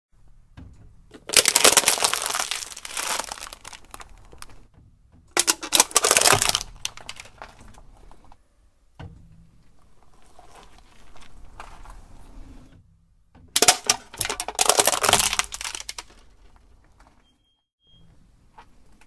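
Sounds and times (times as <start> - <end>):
plastic cups crackling and crunching: 1.1 - 4.7, 5.4 - 8.4, 9.8 - 12.2, 13.6 - 17.0.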